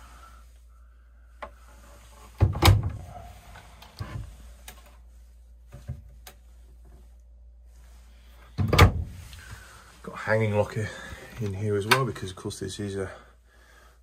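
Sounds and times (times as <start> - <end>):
cupboard doors knocking and clicking: 2.4 - 3.0, 8.6 - 9.1.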